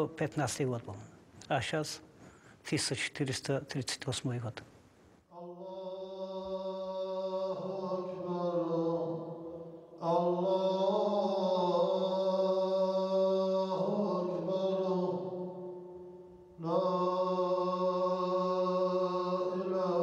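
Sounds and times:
man chanting: 0.0 - 2.0, 2.6 - 4.6.

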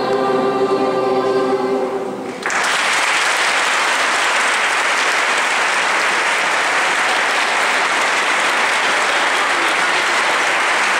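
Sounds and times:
audience applauding: 2.4 - 10.9.

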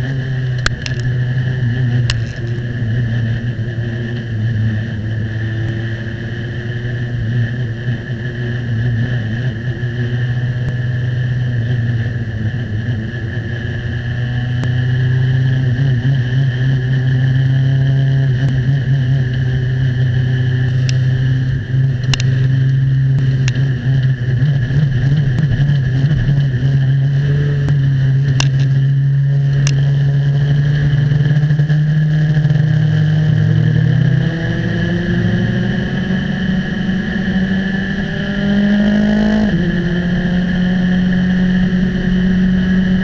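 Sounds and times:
race car engine at low revs: 0.0 - 43.0
sharp click: 22.0 - 22.4.

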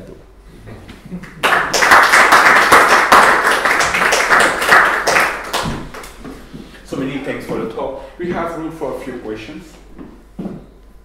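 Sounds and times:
audience applauding: 1.2 - 6.2.

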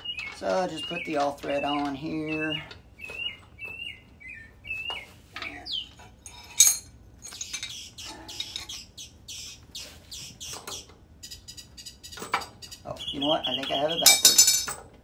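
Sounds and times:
small birds chirping: 0.0 - 14.5
metal hardware clinking and scraping: 6.0 - 8.7, 14.0 - 14.9.

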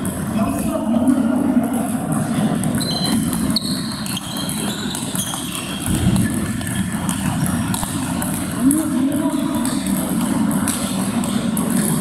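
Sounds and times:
table tennis balls clicking: 1.4 - 12.0.

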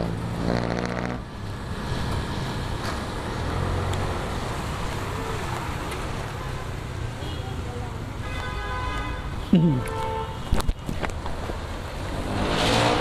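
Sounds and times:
tyres hissing on wet road: 0.0 - 6.3, 11.6 - 13.0
wind noise: 10.4 - 11.6.

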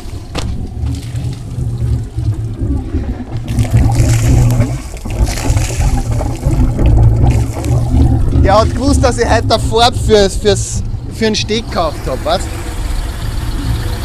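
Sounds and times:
water pouring and splashing: 0.0 - 10.8
boat engine running: 0.0 - 14.0.

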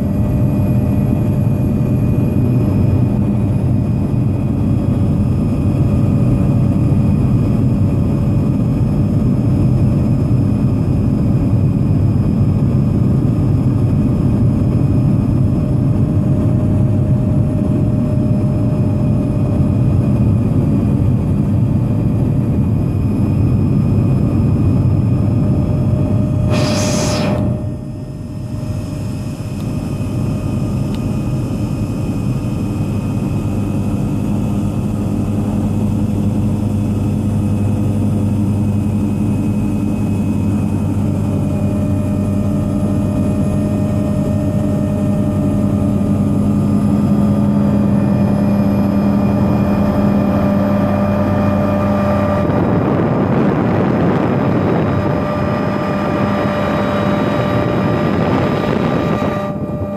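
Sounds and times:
helicopter rotor drone: 0.0 - 59.9
helicopter turbine whine: 0.0 - 59.9.

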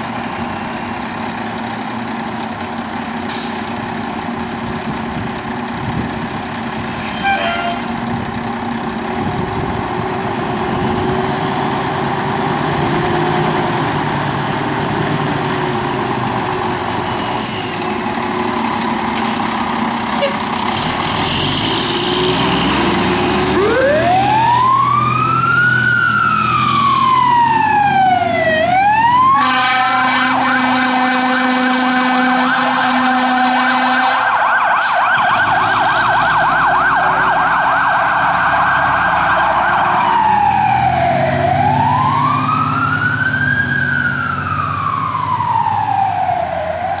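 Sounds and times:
truck engine rumbling: 0.0 - 47.0
fire engine siren wailing: 4.4 - 20.5, 21.2 - 47.0
steady low horn tone: 29.3 - 34.4.

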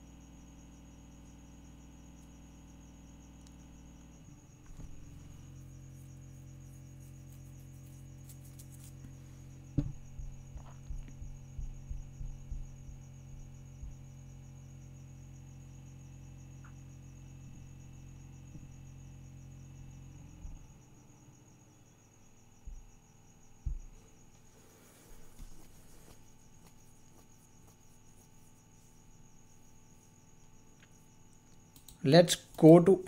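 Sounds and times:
electrical hum with high whine: 0.0 - 33.0
soft low thumps: 4.5 - 5.6, 9.5 - 14.8, 17.4 - 20.9, 22.4 - 24.3.

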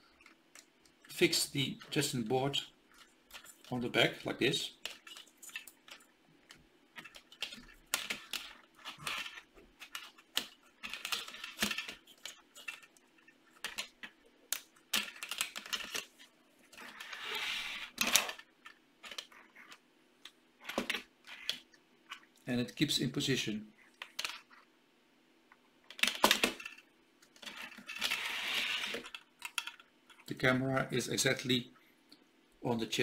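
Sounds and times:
plastic pieces clicking and rattling: 4.8 - 19.8, 23.9 - 24.6, 25.9 - 30.3.

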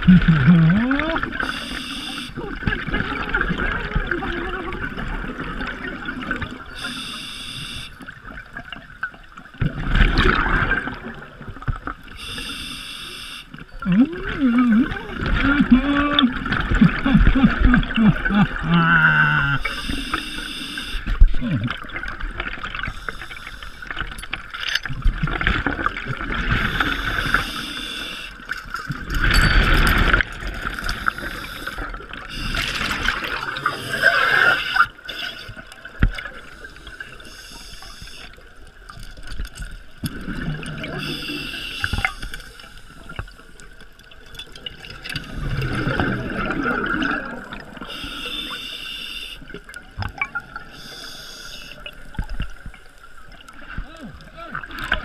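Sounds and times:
exhaled bubbles gurgling: 0.0 - 12.4, 13.6 - 48.8, 49.4 - 55.0
scuba regulator hiss: 6.8 - 7.9, 12.2 - 13.5, 19.6 - 21.0, 26.6 - 28.4, 31.0 - 32.7, 41.0 - 42.5, 47.9 - 49.4, 50.7 - 51.8.

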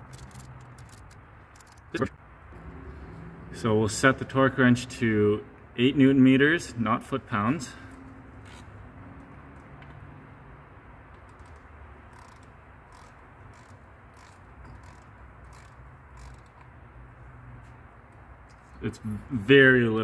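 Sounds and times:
torque wrench ratchet clicking: 0.0 - 1.9, 11.2 - 16.7.

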